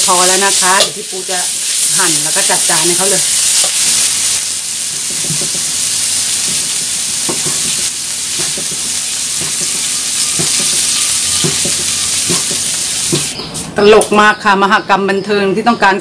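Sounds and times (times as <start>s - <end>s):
beef sizzling in a wok: 0.0s - 13.4s
cleaver knocking on chopping block: 11.4s - 13.3s.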